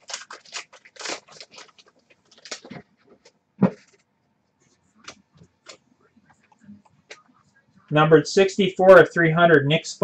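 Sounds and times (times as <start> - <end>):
cards rustling and clicking: 0.0 - 4.1.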